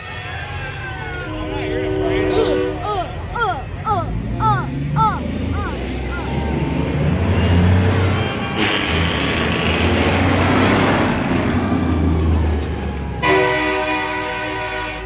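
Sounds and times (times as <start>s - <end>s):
truck diesel engine rumbling: 0.2s - 14.9s
truck air horn blast: 1.2s - 2.8s, 6.1s - 10.0s, 13.2s - 15.0s.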